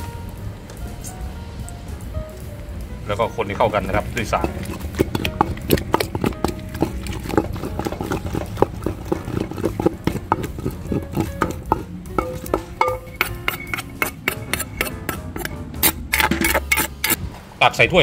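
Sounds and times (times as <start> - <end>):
pestle tapping in mortar: 3.6 - 17.2.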